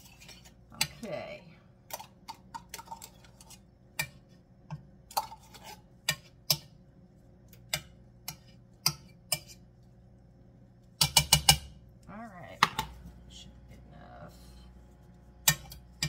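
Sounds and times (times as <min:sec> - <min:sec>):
metal spoon scraping tin can: 0:00.0 - 0:00.9.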